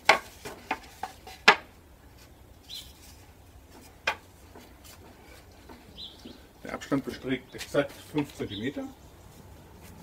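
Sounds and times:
wooden boards knocking: 0:00.0 - 0:01.7, 0:03.8 - 0:04.7.

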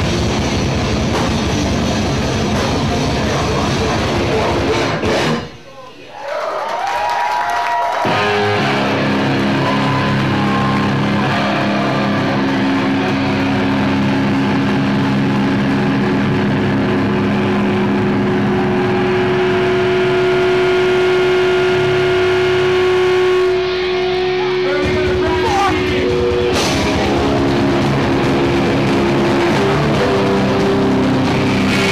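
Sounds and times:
distorted electric guitar chord: 0:08.1 - 0:31.9.

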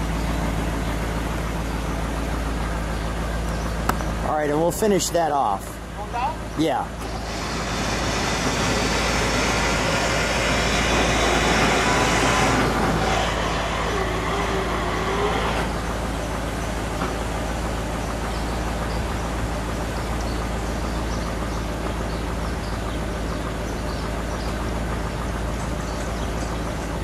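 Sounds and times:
car engine idling: 0:00.0 - 0:27.0
retractable roof mechanism whirring: 0:07.0 - 0:15.8.

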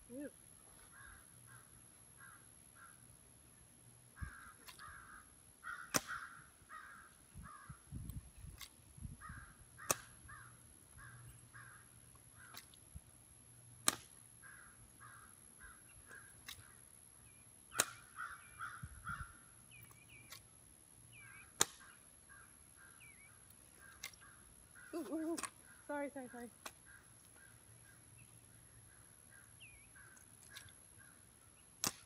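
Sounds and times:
bird calling: 0:04.1 - 0:07.8, 0:14.4 - 0:20.4, 0:21.1 - 0:31.7.

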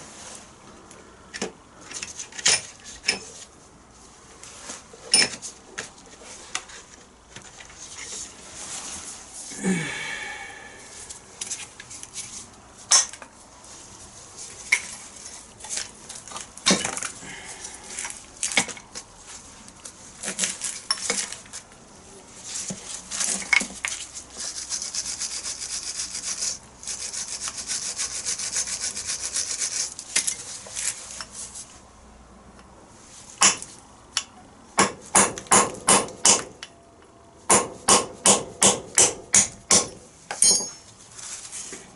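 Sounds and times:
hammer striking metal punch: 0:34.8 - 0:36.5, 0:37.5 - 0:40.8.

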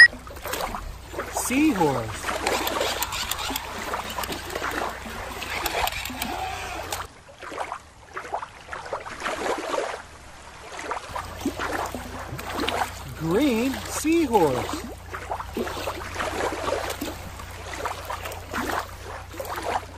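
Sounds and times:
river water splashing: 0:00.0 - 0:19.9
plastic toys clicking and knocking: 0:02.4 - 0:04.4, 0:05.4 - 0:07.1.

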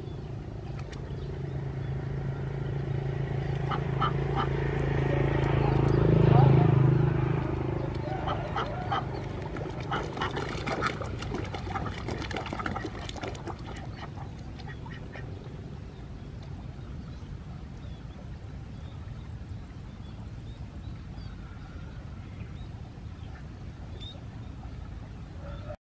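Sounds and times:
ducks quacking: 0:03.6 - 0:04.6, 0:07.8 - 0:15.4.

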